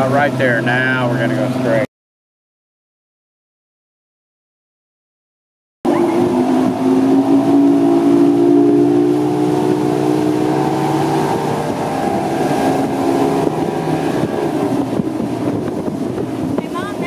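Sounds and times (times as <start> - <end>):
outboard motor drone: 0.0 - 1.9, 5.9 - 17.0
rush of wind and water: 0.0 - 1.9, 5.9 - 17.0.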